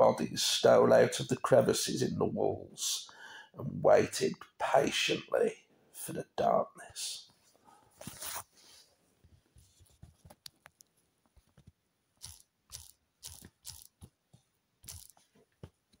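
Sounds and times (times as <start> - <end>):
small clicks: 10.3 - 14.1, 14.8 - 15.3.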